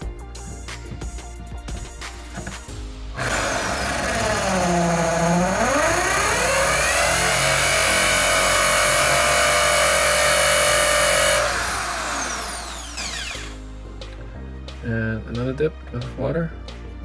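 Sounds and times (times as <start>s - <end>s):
power drill whining: 3.2s - 13.6s.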